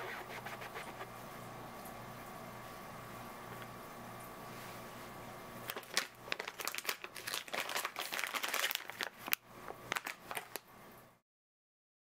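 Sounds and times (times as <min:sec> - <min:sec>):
crinkly packaging crackling: 0:05.6 - 0:10.7.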